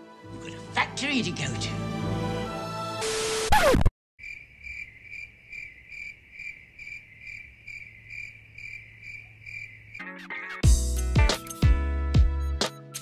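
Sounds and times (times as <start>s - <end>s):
tv static burst: 3.0s - 3.9s
cricket chirping: 4.2s - 10.1s.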